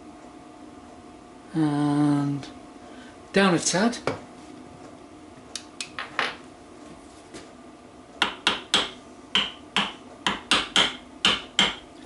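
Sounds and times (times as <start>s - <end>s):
hammer tapping on metal: 8.2s - 11.8s.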